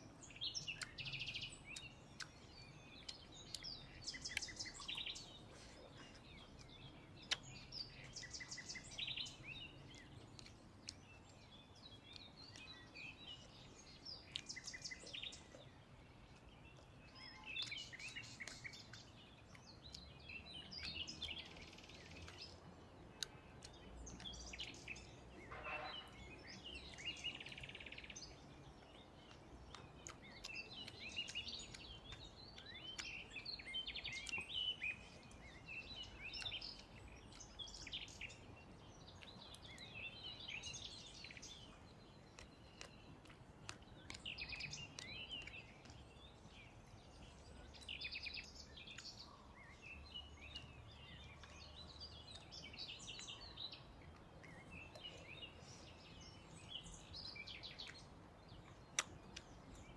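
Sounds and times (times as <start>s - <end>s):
small birds chirping: 0.0s - 59.9s
faint clicks: 0.6s - 5.2s, 26.9s - 38.3s.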